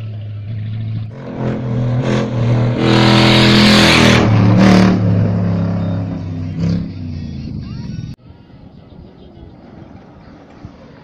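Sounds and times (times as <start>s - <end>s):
rally car engine revving: 0.4s - 7.5s
loud rushing noise: 1.1s - 7.1s.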